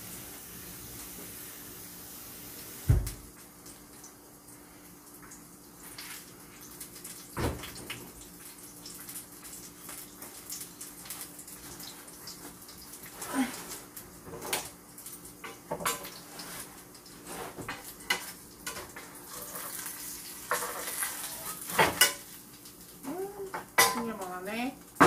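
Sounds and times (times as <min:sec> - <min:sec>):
tap water running in sink: 0:00.0 - 0:04.2, 0:05.1 - 0:25.0.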